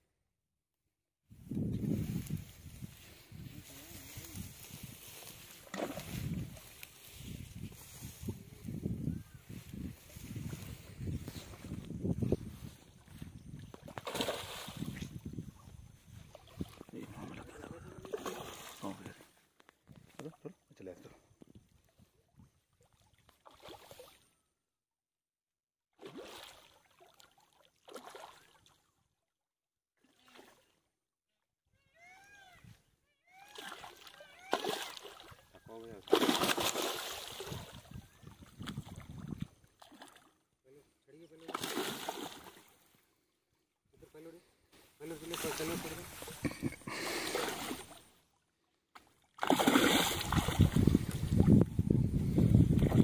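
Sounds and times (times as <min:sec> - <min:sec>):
wind rumble on microphone: 0:01.3 - 0:14.0, 0:14.7 - 0:18.0, 0:37.5 - 0:39.6, 0:50.1 - 0:53.0
fish splashing in water: 0:13.7 - 0:15.0, 0:26.0 - 0:28.7, 0:33.4 - 0:35.4, 0:36.0 - 0:40.3, 0:41.4 - 0:42.8, 0:49.0 - 0:51.4.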